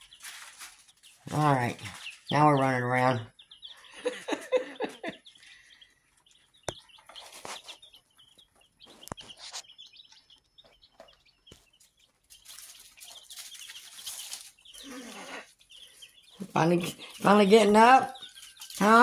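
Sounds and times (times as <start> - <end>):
rustling: 0.0 - 2.3, 6.4 - 16.4
baby chicks peeping: 0.0 - 19.0.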